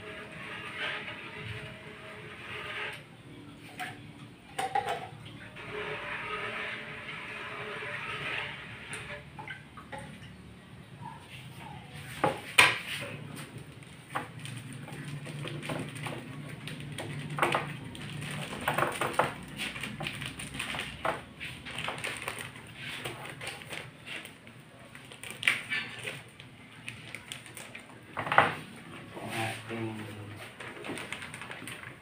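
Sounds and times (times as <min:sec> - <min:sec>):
paper bag rustling: 0:12.9 - 0:32.0.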